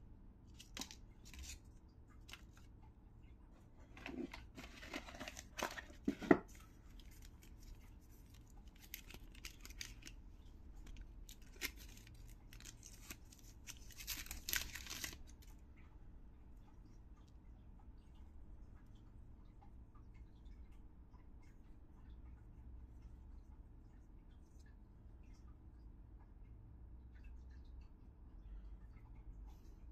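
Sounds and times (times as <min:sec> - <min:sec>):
plastic wrap crinkling and tearing: 0:04.0 - 0:07.7, 0:08.4 - 0:10.2, 0:10.8 - 0:15.4.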